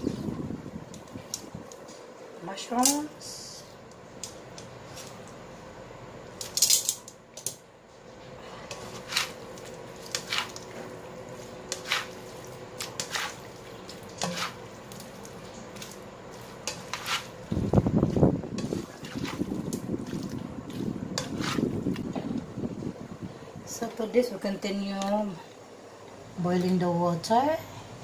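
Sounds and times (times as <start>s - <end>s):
stir-fry sizzling hiss: 8.2s - 28.0s.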